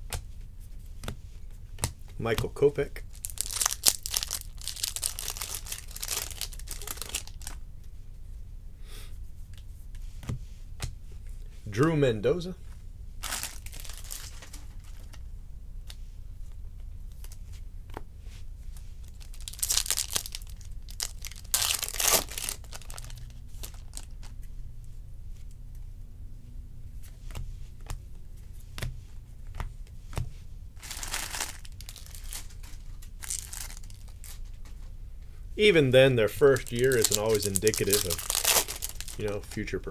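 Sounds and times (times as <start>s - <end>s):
foil wrappers crinkling and tearing: 3.0s - 7.6s, 13.2s - 15.2s, 19.0s - 24.4s, 30.8s - 34.5s, 36.2s - 39.8s
cards clicking and shuffling: 36.4s - 39.8s.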